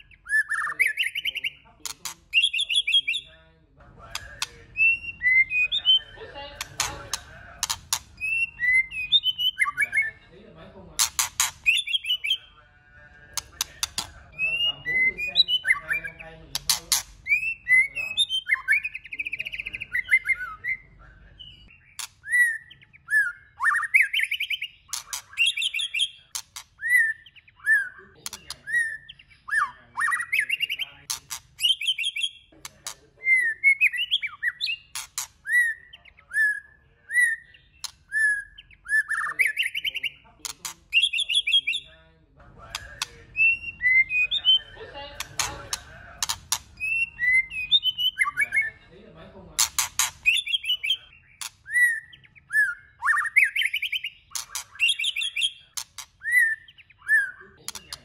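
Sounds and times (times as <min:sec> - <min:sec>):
bird whistled song: 0:00.0 - 0:01.7, 0:02.3 - 0:03.4, 0:04.1 - 0:06.2, 0:07.6 - 0:10.2, 0:11.1 - 0:12.6, 0:13.4 - 0:32.6, 0:33.2 - 0:40.2, 0:40.9 - 0:42.0, 0:42.7 - 0:44.8, 0:45.4 - 0:48.8, 0:49.7 - 0:58.0
bird sharp clicking notes: 0:04.1 - 0:04.8, 0:06.6 - 0:08.3, 0:11.0 - 0:12.0, 0:13.3 - 0:14.7, 0:42.7 - 0:43.2, 0:45.2 - 0:47.1, 0:49.6 - 0:50.7.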